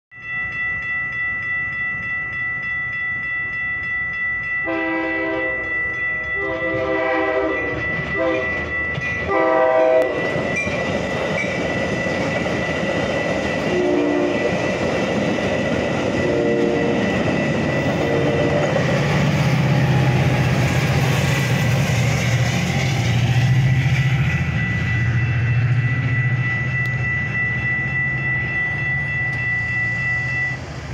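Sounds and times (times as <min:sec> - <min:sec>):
crossing bell ringing: 0:00.1 - 0:30.9
train horn blasts: 0:04.6 - 0:05.7, 0:06.4 - 0:08.6, 0:09.2 - 0:10.4, 0:13.7 - 0:14.6, 0:16.2 - 0:17.1, 0:18.0 - 0:18.8
train wheels clattering on rails: 0:05.6 - 0:30.9.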